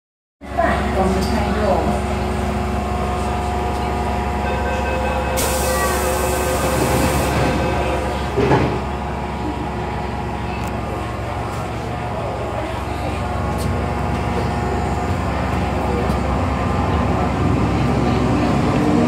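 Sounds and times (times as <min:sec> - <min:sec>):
train equipment humming: 0:00.8 - 0:18.5
train doors closing with a thud: 0:04.7 - 0:09.0.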